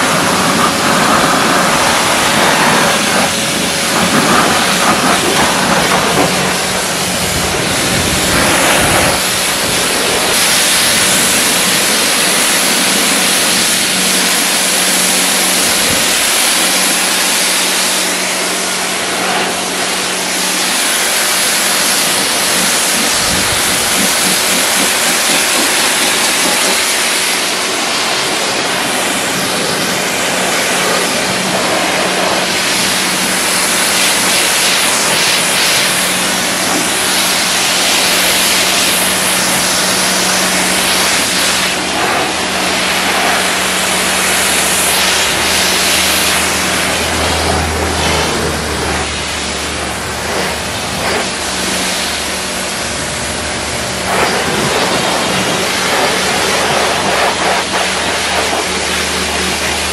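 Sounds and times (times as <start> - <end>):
pressure washer spraying: 0.0 - 59.9
low hum: 40.3 - 59.9.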